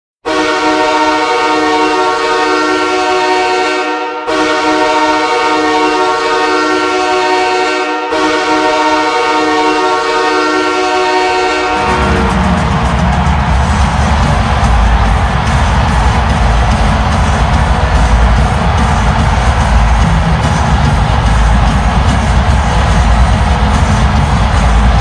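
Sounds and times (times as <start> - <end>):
goal horn blasts: 0.3 - 12.6.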